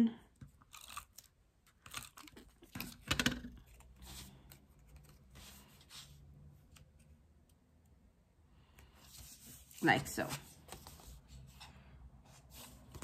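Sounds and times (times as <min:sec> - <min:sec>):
paper rustling: 0:09.0 - 0:11.7.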